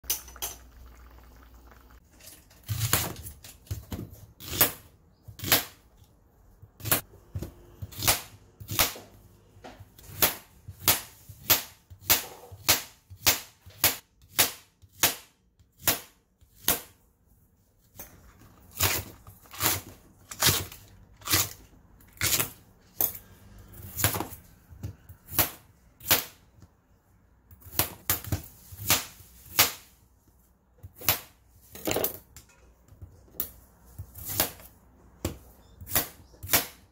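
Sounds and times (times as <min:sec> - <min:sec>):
knife chopping on metal board: 0:10.0 - 0:17.0, 0:34.2 - 0:36.8.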